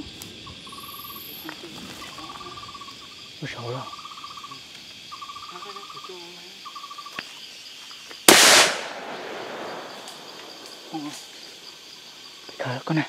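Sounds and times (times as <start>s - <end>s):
insects trilling: 0.0s - 13.0s
gunshot with echo: 8.3s - 10.4s.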